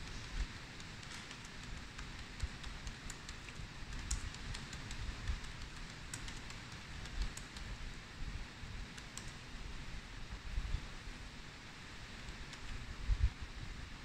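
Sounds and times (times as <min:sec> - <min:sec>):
keyboard key clicks: 0:00.8 - 0:07.7.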